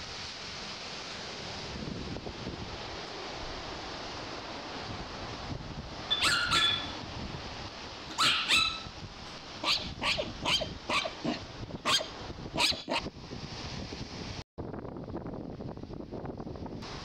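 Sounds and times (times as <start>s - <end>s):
wind and surf hiss: 0.0s - 17.0s
small dog yapping: 6.1s - 6.9s, 8.1s - 8.9s, 9.6s - 13.1s.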